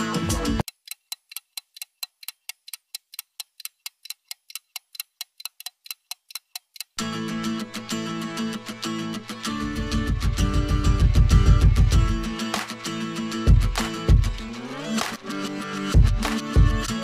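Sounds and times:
background music: 0.0 - 0.6, 7.0 - 17.0
clock-like ticking: 0.6 - 7.0.

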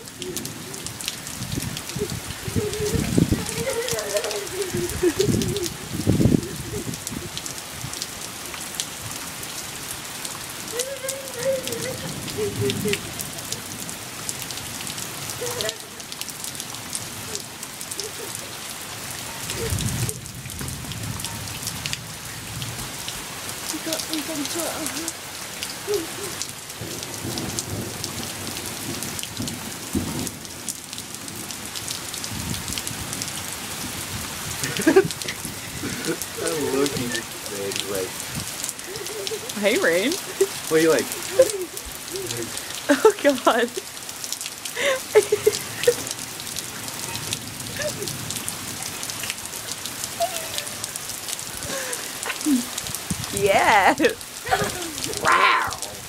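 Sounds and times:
rain falling on pavement: 0.0 - 56.0
high wavering voice: 54.5 - 56.0.

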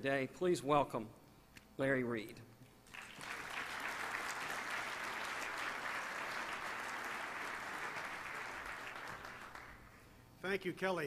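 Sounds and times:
audience applauding: 2.9 - 10.0.

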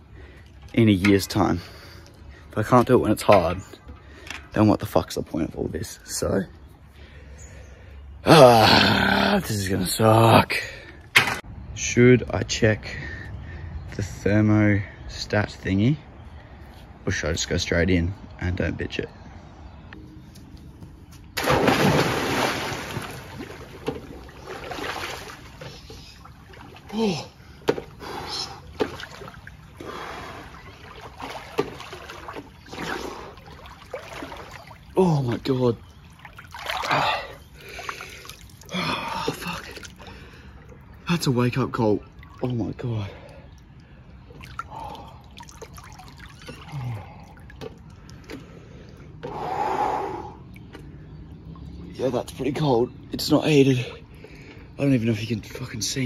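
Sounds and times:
water sloshing and lapping: 0.0 - 4.5, 21.3 - 49.5, 50.3 - 52.6
big splash into pool: 21.4 - 25.4
small water splashes: 21.4 - 49.2.

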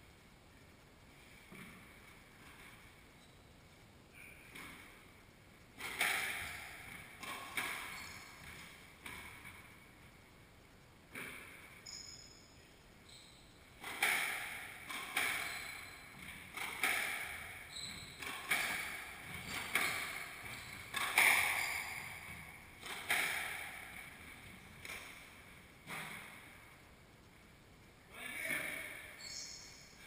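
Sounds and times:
squash ball hits echoing: 5.8 - 9.7, 13.8 - 25.2
shoe squeaks on wooden floor: 7.9 - 8.4, 15.4 - 16.2, 17.7 - 18.2, 19.4 - 22.2, 29.2 - 29.8.

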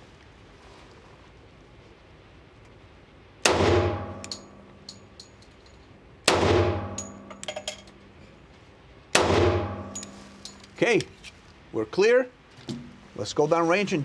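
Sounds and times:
pistol shots echoing: 3.4 - 4.5, 6.3 - 7.3, 9.2 - 10.0
brass cases clinking: 4.1 - 5.8, 6.9 - 8.0, 9.8 - 10.8.

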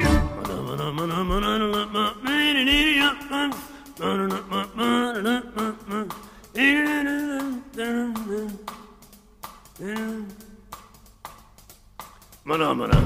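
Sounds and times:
novelty song vocals: 0.0 - 13.0.

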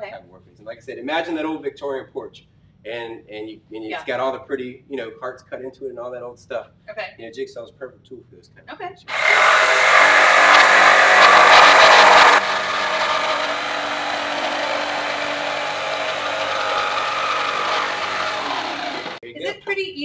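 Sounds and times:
jigsaw cutting wood: 9.1 - 19.2.

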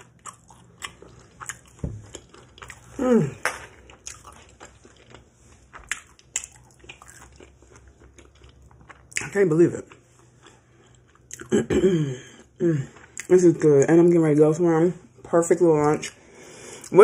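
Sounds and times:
chewing with wet mouth smacks: 0.0 - 3.0, 3.6 - 11.5
person humming mmm: 3.0 - 3.4.

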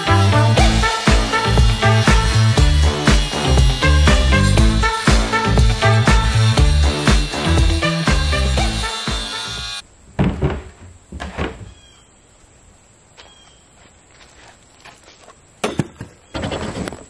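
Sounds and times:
stiff plastic knocks and thumps: 10.2 - 11.7.

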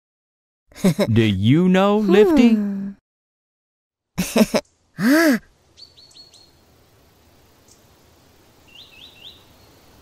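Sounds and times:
background hiss: 4.2 - 10.0
faint bird chirps: 5.6 - 10.0.

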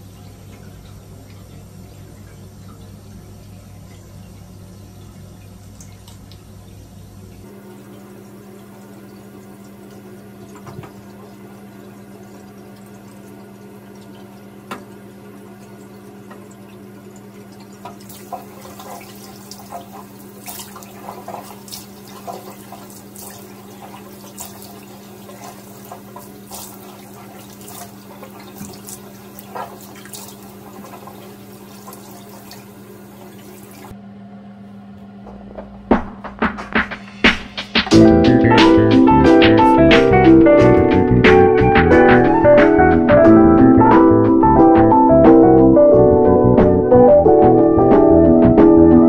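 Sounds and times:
water splashing in sink: 0.0 - 33.9.

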